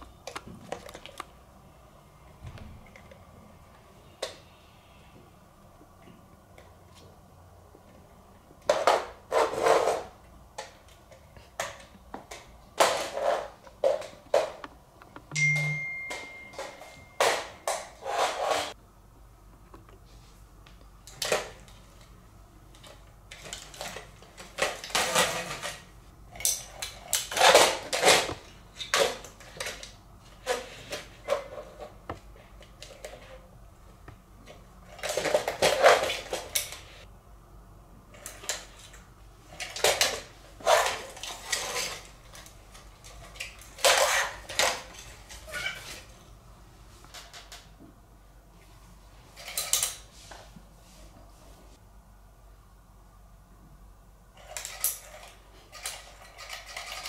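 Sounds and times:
high beep: 15.4 - 17.3.

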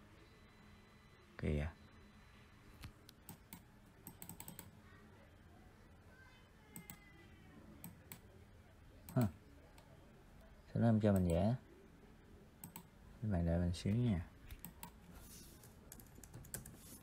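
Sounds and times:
computer mouse clicks: 2.8 - 4.7, 6.7 - 7.0, 12.6 - 12.9, 14.5 - 15.0, 15.6 - 17.0.

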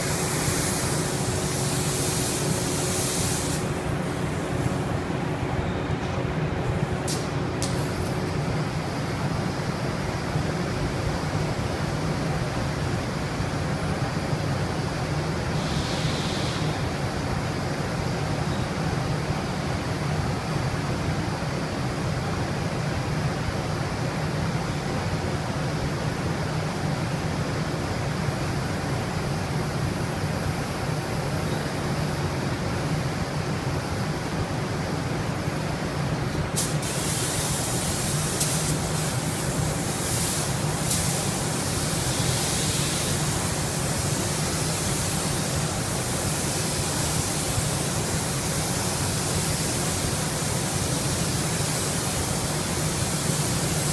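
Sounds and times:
paint spray gun hissing: 0.0 - 4.9, 36.5 - 53.9.

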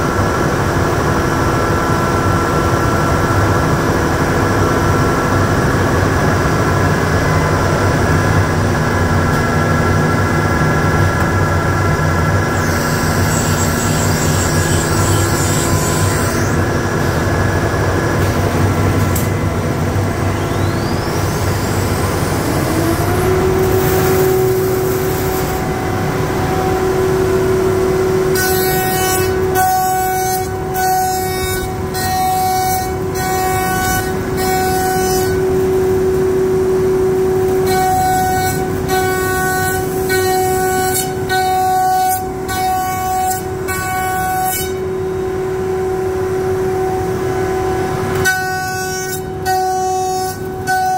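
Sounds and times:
router spindle whine: 9.0 - 48.6.

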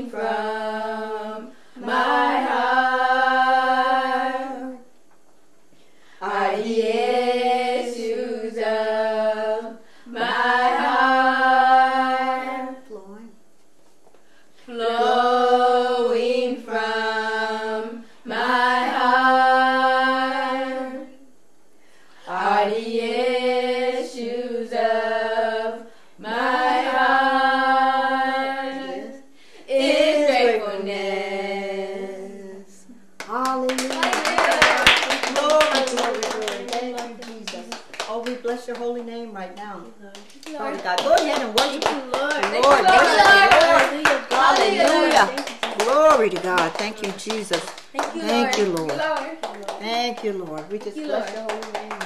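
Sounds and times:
breath: 5.7 - 6.2, 9.8 - 10.1, 14.2 - 14.7, 21.8 - 22.3, 25.9 - 26.2, 29.3 - 29.7.

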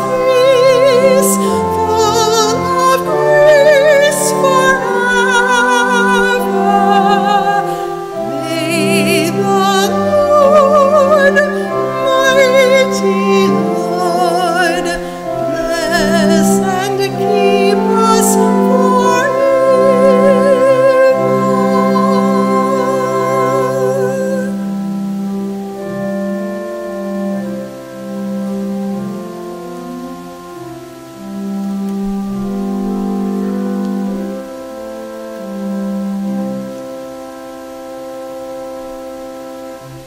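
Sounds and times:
person singing with wide vibrato: 0.0 - 31.5
organ holding slow chords: 0.0 - 40.0.

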